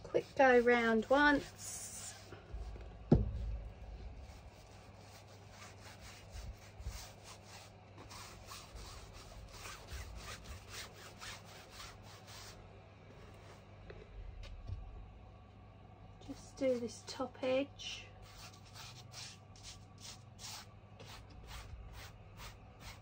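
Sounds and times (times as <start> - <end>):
brush strokes on canvas: 0.0 - 2.9, 3.7 - 12.6, 18.2 - 23.0.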